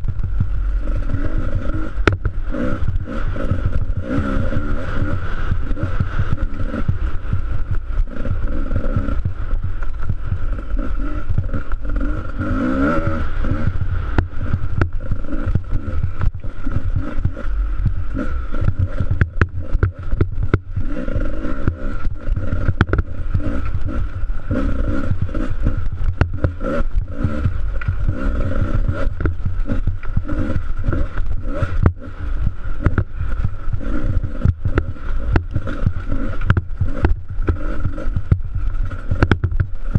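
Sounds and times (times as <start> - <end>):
dirt bike engine revving: 0.0 - 39.9.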